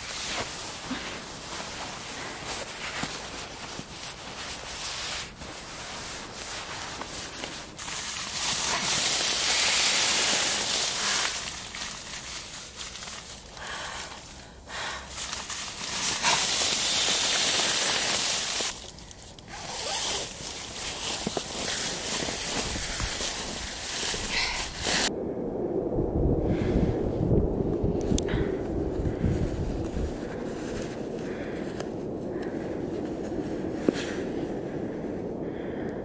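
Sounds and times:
crinkly rustling of bags: 0.0 - 14.4, 15.0 - 25.1.

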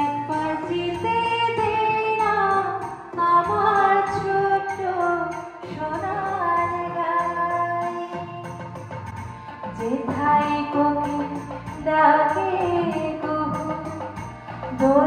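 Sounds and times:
steady bass beat: 0.2 - 15.0
person singing: 9.7 - 15.0.

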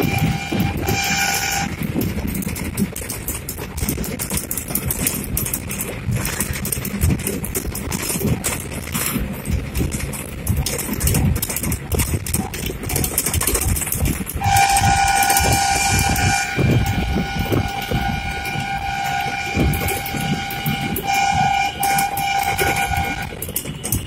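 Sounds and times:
vehicle horn long note: 0.0 - 1.7, 14.4 - 24.0
vehicle rumbling and rattling: 0.0 - 24.0.

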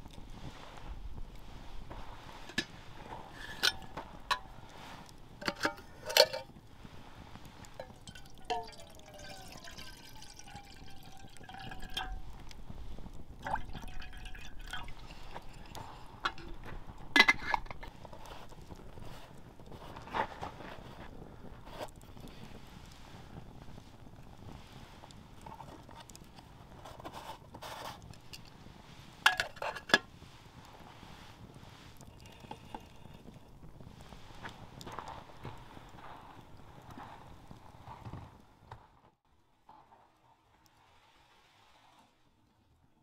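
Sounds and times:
metal cookware clinking: 3.3 - 4.6, 5.4 - 6.5, 7.8 - 12.4
water pouring: 7.5 - 19.1.

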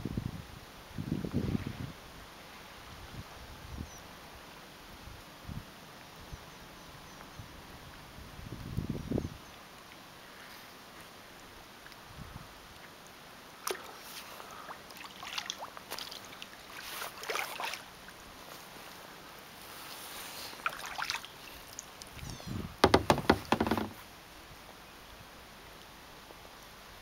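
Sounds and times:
water splashing and dripping: 12.6 - 19.6, 20.4 - 24.1
kayak paddle strokes: 13.6 - 24.1
loud knocks: 22.8 - 24.0.

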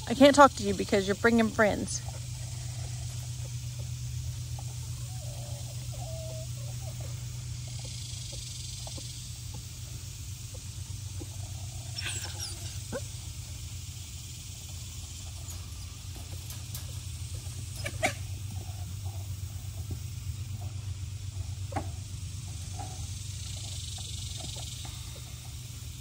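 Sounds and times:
steady low hum: 0.0 - 26.0
puppies whining and yelping: 4.5 - 9.1, 11.2 - 13.2.

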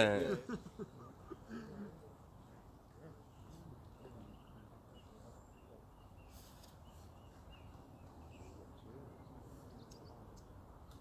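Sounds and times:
small bird chirping: 3.4 - 10.7.

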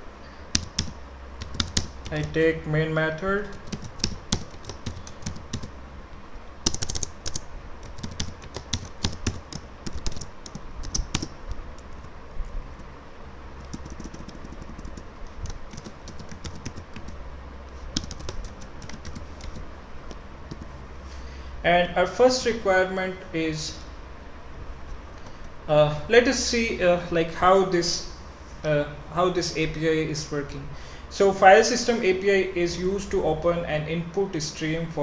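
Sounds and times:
keyboard typing: 0.5 - 2.4, 3.4 - 5.7, 6.6 - 12.1, 13.6 - 17.2, 17.9 - 19.7, 20.5 - 20.7.

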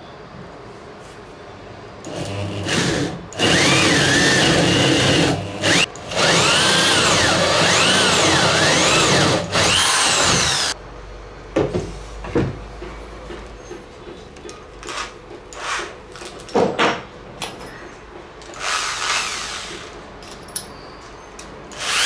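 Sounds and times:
electric drill boring into wood: 2.1 - 10.8, 21.7 - 22.0.

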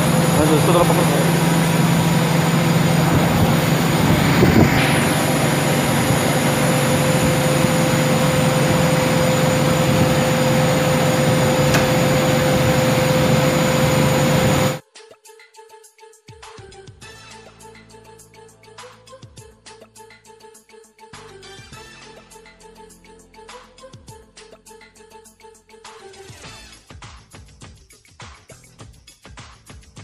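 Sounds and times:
machinery hum: 0.0 - 14.8
machinery whine: 0.0 - 14.8.

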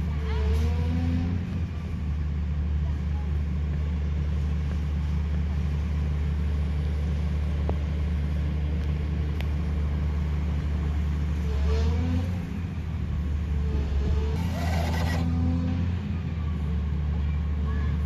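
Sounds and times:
truck engine running: 0.0 - 18.0
rising hydraulic whine: 13.6 - 15.9.

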